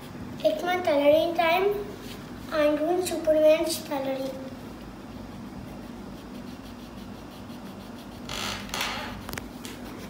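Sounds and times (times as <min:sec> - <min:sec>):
low room hum: 0:00.0 - 0:10.0
pencil rubbing on paper: 0:04.5 - 0:08.3, 0:09.3 - 0:10.0.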